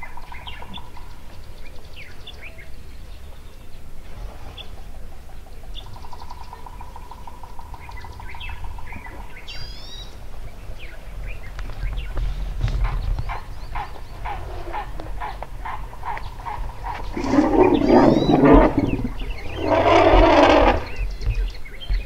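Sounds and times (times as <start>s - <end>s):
birds chirping and whistling: 7.8s - 10.2s, 10.8s - 22.0s
low rumble: 12.0s - 21.2s
bird trilling: 13.7s - 21.1s.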